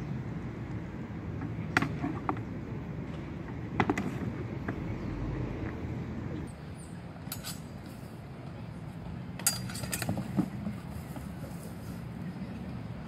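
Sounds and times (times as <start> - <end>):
low city rumble: 0.0 - 13.0.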